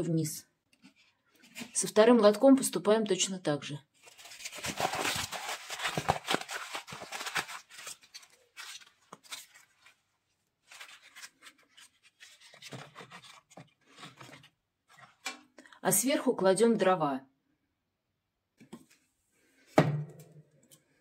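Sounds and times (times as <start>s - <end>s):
paper rustling: 4.0s - 15.3s
paper egg tray crunching: 4.1s - 10.0s.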